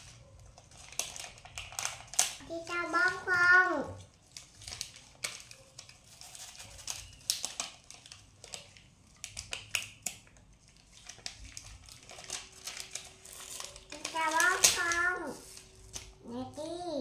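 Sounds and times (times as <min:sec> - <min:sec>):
sticker sheet crinkling: 0:00.0 - 0:16.8.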